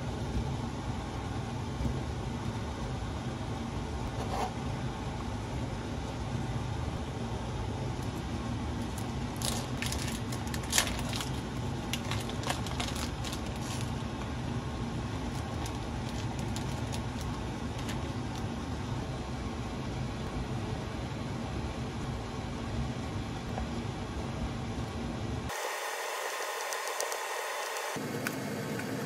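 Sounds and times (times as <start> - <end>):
steady low hum: 0.0 - 29.0
foil wrapper crinkling: 8.8 - 14.1, 15.2 - 18.5.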